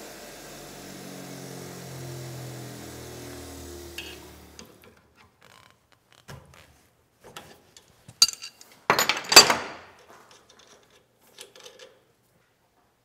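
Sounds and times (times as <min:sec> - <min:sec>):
wrench clanking against nuts: 0:08.2 - 0:09.7.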